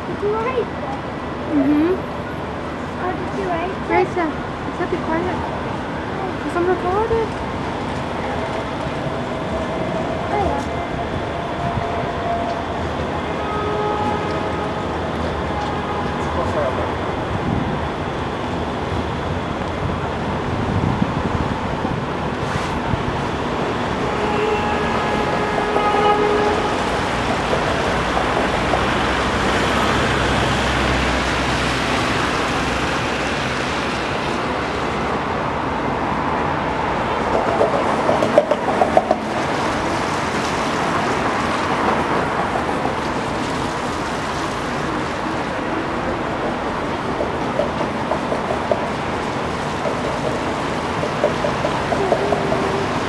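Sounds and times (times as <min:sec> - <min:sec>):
city street traffic: 0:00.0 - 0:53.0
vehicle horn toot: 0:13.4 - 0:14.9, 0:24.0 - 0:27.2
sharp knocks and clatter: 0:47.1 - 0:53.0.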